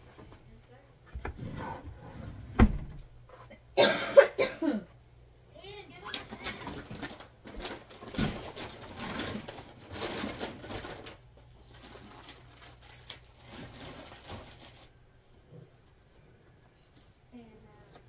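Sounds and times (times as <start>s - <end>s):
rustling belongings: 5.9s - 15.0s.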